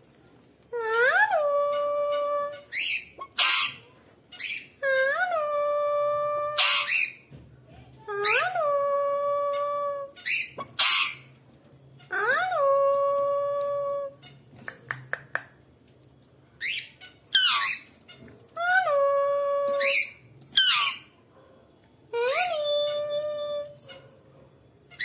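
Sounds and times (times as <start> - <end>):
parakeet calling: 1.7 - 3.8, 4.4 - 4.8, 6.6 - 7.2, 10.2 - 12.2, 16.6 - 18.4, 19.8 - 21.2.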